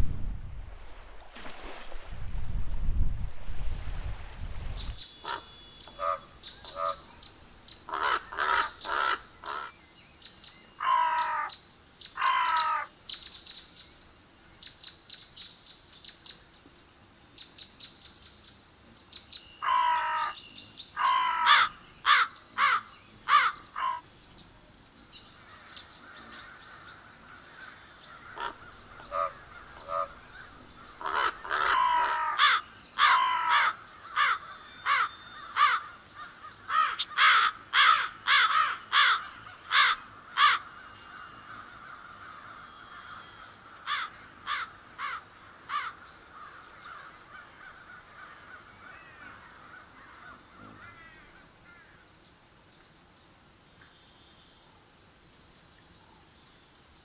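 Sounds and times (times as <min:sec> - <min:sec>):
crows cawing: 0:05.2 - 0:07.1, 0:07.9 - 0:09.8, 0:10.8 - 0:11.5, 0:12.2 - 0:12.9, 0:19.6 - 0:20.4, 0:21.0 - 0:24.1, 0:25.4 - 0:52.0.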